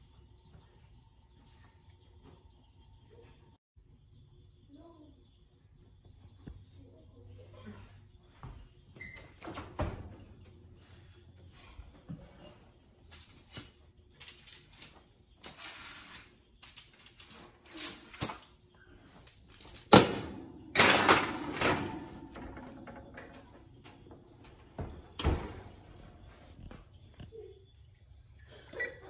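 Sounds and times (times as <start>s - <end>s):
foil rustling: 14.2s - 18.5s
metal baking sheet clattering: 19.6s - 23.8s
oven door thud: 24.8s - 25.8s.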